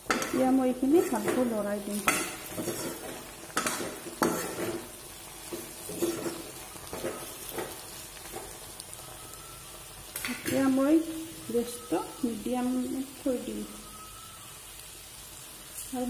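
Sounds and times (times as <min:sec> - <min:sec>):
metal spatula scraping pan: 0:00.0 - 0:08.6
oil sizzling: 0:00.0 - 0:16.0.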